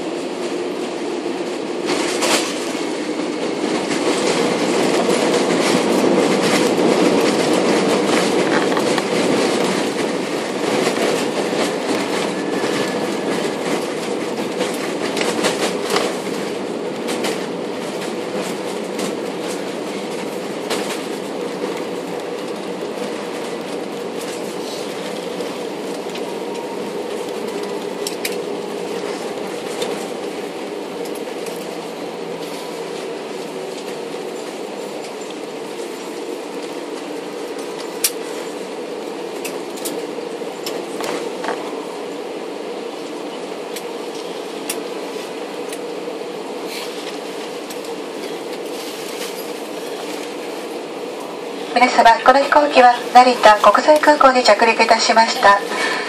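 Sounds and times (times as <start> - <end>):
aircraft runway and engine roar: 0.0 - 41.7, 43.0 - 45.9.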